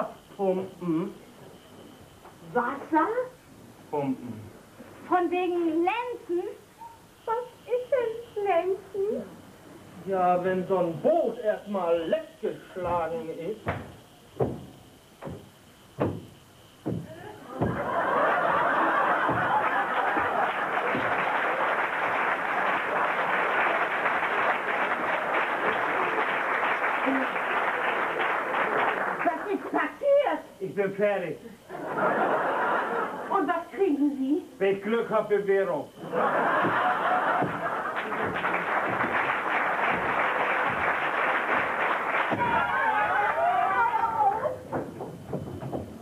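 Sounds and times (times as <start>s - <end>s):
audience laughing: 17.2s - 29.2s, 31.7s - 33.3s, 36.0s - 44.5s
audience applauding: 17.6s - 29.8s, 36.4s - 44.5s
swim fins slapping floor: 36.6s - 42.8s.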